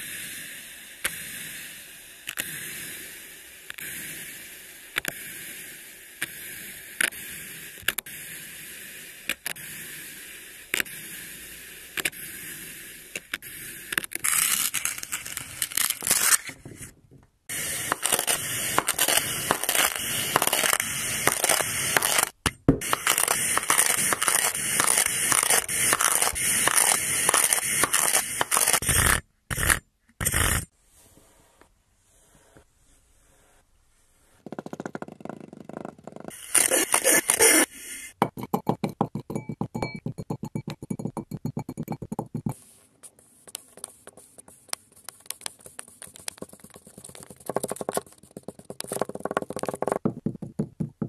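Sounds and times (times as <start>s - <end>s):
knife cutting kinetic sand: 0.0s - 16.9s, 17.5s - 30.8s, 36.3s - 39.6s.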